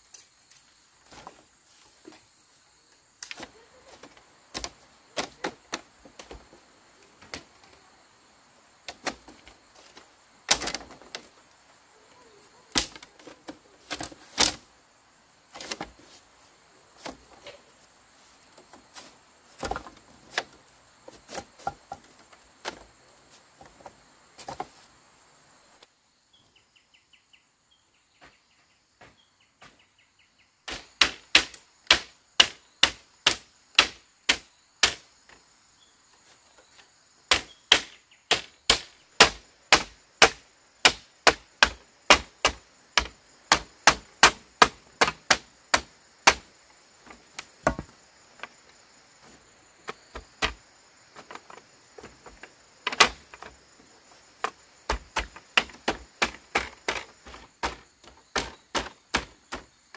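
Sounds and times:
machete chopping bamboo: 0:04.5 - 0:05.8, 0:10.5 - 0:11.2, 0:12.7 - 0:13.1, 0:13.9 - 0:14.6, 0:17.0 - 0:17.6, 0:19.6 - 0:20.5, 0:30.7 - 0:35.1, 0:37.3 - 0:46.5, 0:47.4 - 0:47.9, 0:51.2 - 0:53.5, 0:54.4 - 0:59.7.

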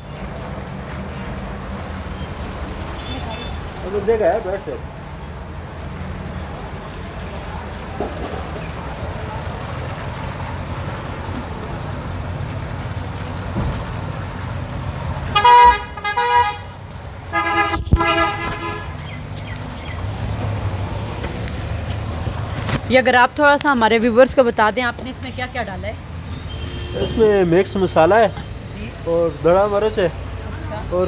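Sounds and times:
vehicle horns honking: 0:15.3 - 0:19.1, 0:26.4 - 0:28.6.

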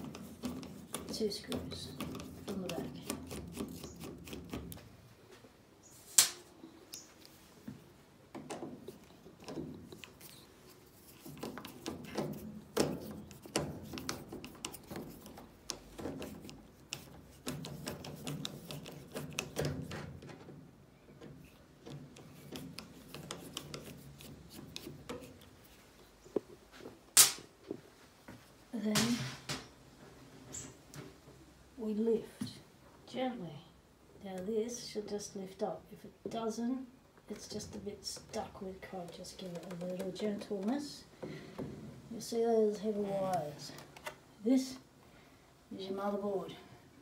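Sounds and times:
screwdriver clicking and scraping: 0:00.0 - 0:04.7, 0:11.0 - 0:20.0, 0:21.9 - 0:25.5
sharp click: 0:27.2 - 0:27.5.

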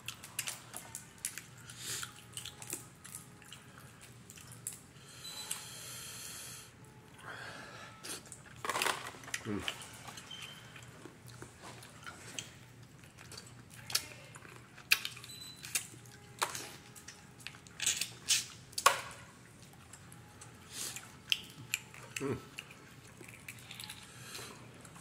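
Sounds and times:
wet sucking and chewing: 0:01.3 - 0:04.8, 0:19.5 - 0:25.0.

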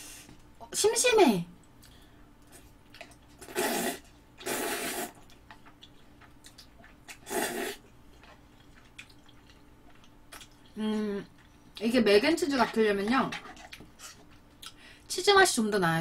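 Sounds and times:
slurping noodles: 0:03.4 - 0:05.2, 0:07.1 - 0:07.8.

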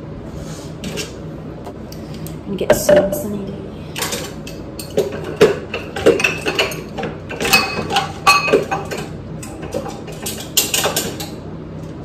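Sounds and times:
dishes and utensils clinking: 0:04.0 - 0:11.4.

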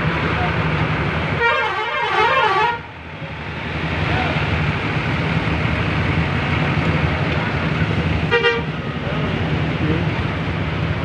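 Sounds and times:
coach engine rumbling: 0:00.0 - 0:11.0
bus horn warbling tune: 0:01.4 - 0:02.9, 0:08.3 - 0:08.8.

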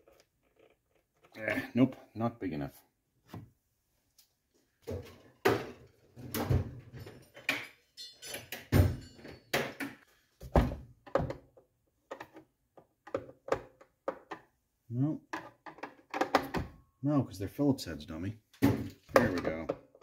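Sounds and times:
hand tools clattering on workbench: 0:05.0 - 0:10.1.

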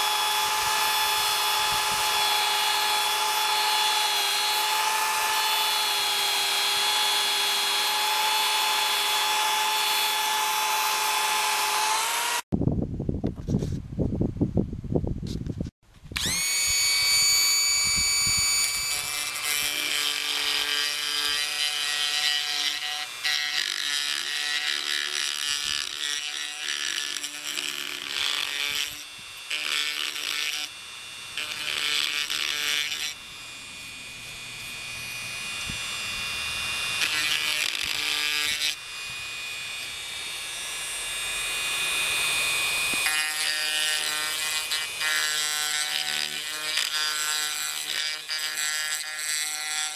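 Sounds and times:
rotary tool whine and grinding: 0:00.0 - 0:12.5, 0:16.1 - 0:49.9.

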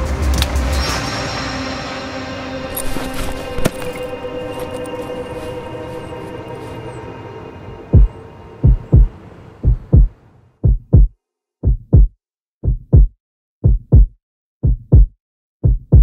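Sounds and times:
background music: 0:00.0 - 0:10.0
heartbeat thumps: 0:07.9 - 0:16.0.

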